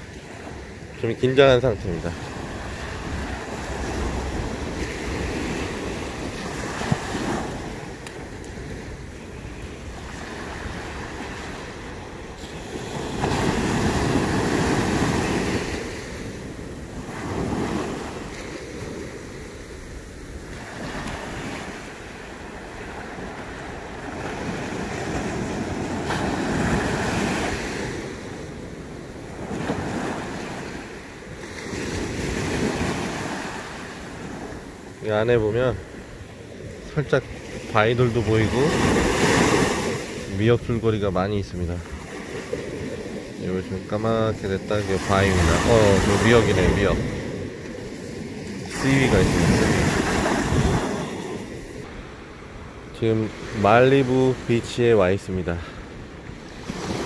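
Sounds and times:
waves breaking on a beach: 0:00.0 - 0:57.0
wind buffeting the microphone: 0:44.8 - 0:51.9.

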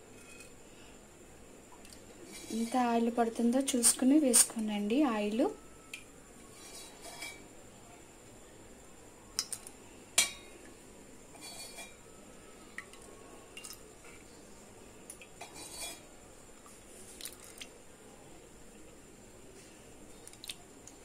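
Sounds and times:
utensils clinking against pan: 0:06.6 - 0:07.4, 0:11.3 - 0:12.0, 0:15.4 - 0:16.0.

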